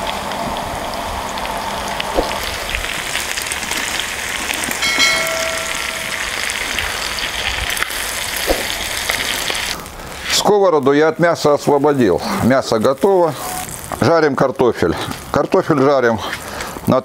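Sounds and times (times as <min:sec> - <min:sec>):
meat sizzling in a skillet: 0:00.8 - 0:14.6
brief ringing tone: 0:04.8 - 0:06.8.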